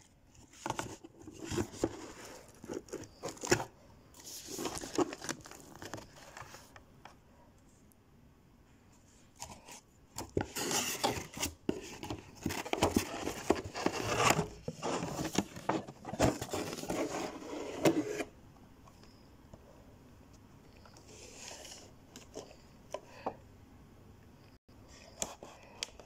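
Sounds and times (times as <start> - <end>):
cardboard box rubbing and scraping: 10.5 - 18.3.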